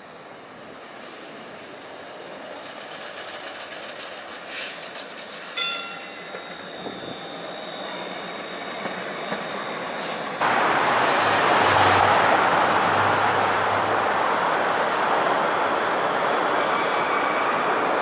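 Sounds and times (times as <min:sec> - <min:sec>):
street traffic noise: 0:00.0 - 0:18.0
streetcar wheels clicking on rail: 0:01.4 - 0:10.5
high-pitched wheel squeal: 0:05.6 - 0:10.3.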